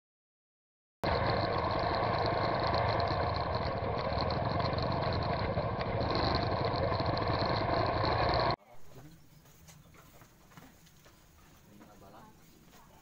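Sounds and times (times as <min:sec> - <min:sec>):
motorcycle engine idling: 0:01.1 - 0:08.6.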